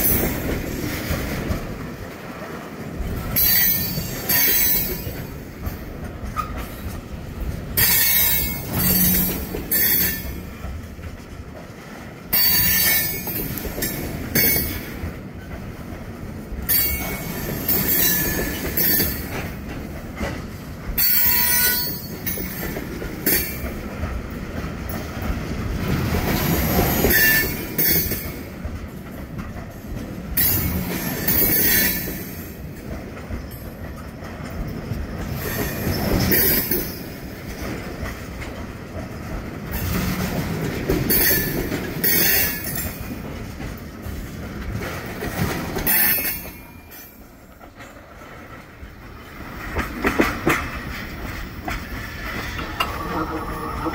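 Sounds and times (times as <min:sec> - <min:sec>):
train rolling rumble: 0:00.0 - 0:53.9
steel wheels squealing on rails: 0:03.2 - 0:07.1, 0:07.8 - 0:10.7, 0:12.3 - 0:15.6, 0:16.6 - 0:23.8, 0:25.8 - 0:28.5, 0:30.4 - 0:38.4, 0:39.7 - 0:43.4, 0:45.2 - 0:48.0, 0:50.6 - 0:53.9.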